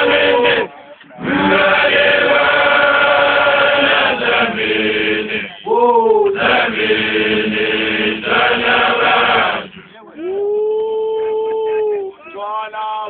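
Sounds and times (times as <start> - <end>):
group chanting long notes: 0.0 - 10.0.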